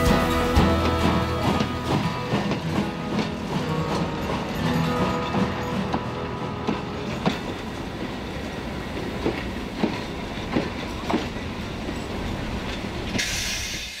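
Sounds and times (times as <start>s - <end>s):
train rumble: 0.0s - 14.0s
train wheels clicking over rails: 0.0s - 14.0s
steam hiss: 13.1s - 14.0s.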